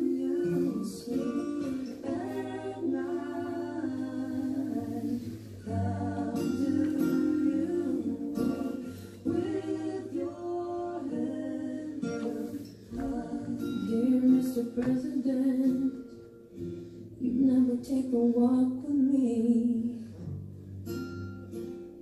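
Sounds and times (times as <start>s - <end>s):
voices singing in harmony: 0.0s - 15.9s.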